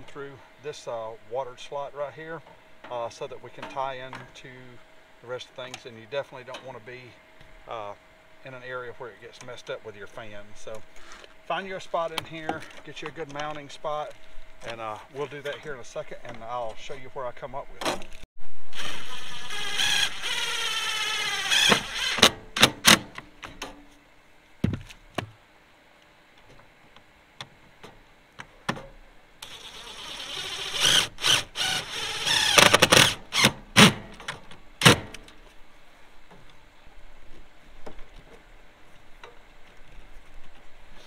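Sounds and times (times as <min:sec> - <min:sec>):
cordless drill driving screws: 0:18.7 - 0:23.0, 0:29.4 - 0:34.0.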